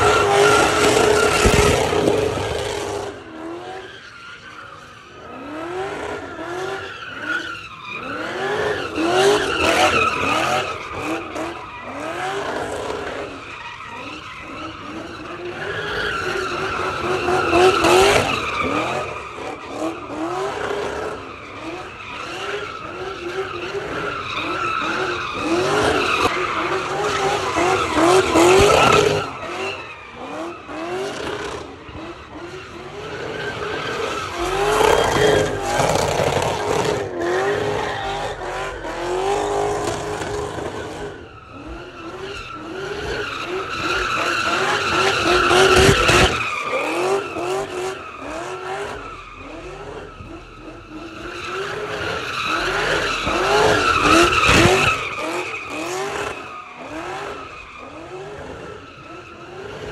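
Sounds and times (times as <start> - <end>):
car engine revving: 0.0 - 4.0, 4.7 - 59.9
tyres squealing: 27.4 - 58.1.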